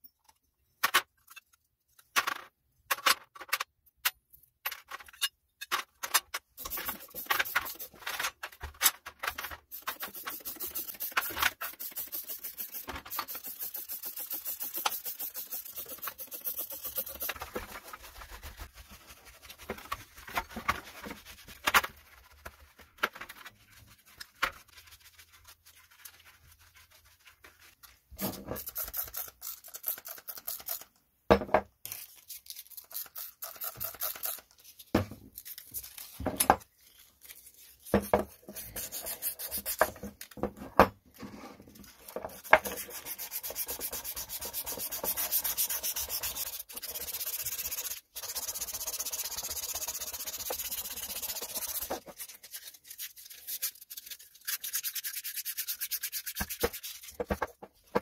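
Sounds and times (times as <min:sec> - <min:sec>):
brush scrubbing metal: 0:06.6 - 0:08.0, 0:09.4 - 0:30.3, 0:37.6 - 0:40.0, 0:41.9 - 0:57.3.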